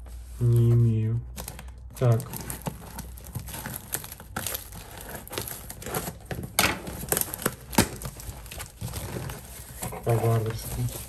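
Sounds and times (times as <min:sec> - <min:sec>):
cardboard crinkling: 0:00.0 - 0:11.0
tape tearing: 0:01.3 - 0:11.0
scissors cutting packing tape: 0:01.4 - 0:09.9.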